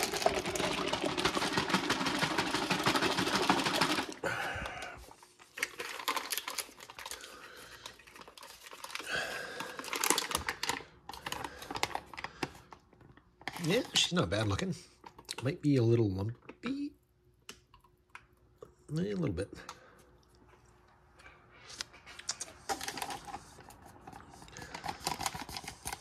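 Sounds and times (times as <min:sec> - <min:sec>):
drink pouch shaking slosh: 0:00.0 - 0:04.2
plastic pouch crinkling: 0:05.2 - 0:12.8.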